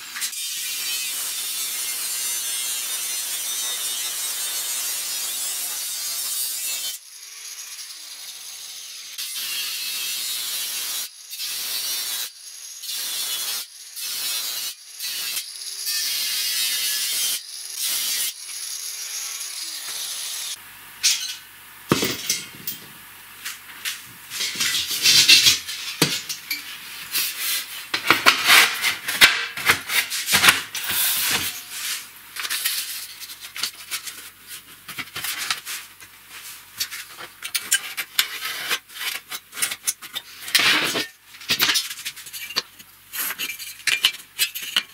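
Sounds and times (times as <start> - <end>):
angle grinder cutting steel: 0.0 - 34.0.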